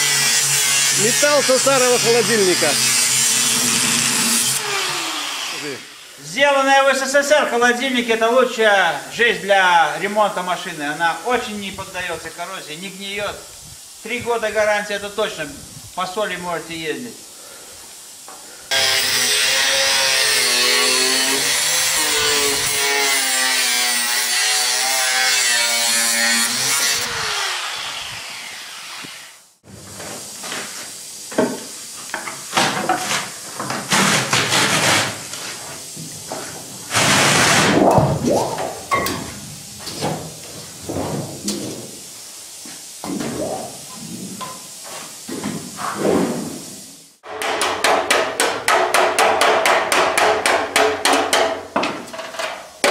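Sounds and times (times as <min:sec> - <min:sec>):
angle grinder cutting steel: 0:00.0 - 0:06.0, 0:18.7 - 0:29.4
metalwork knocks: 0:47.3 - 0:52.9.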